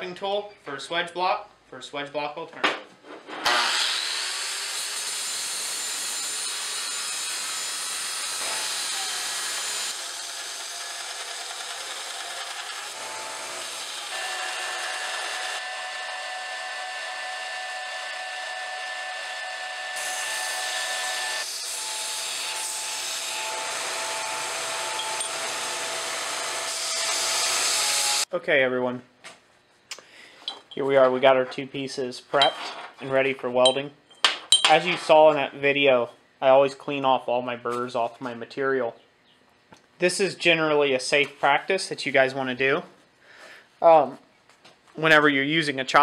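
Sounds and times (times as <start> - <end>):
saw blade rasping through metal: 3.4 - 16.9, 19.5 - 26.1
bandsaw motor whine: 8.4 - 21.5.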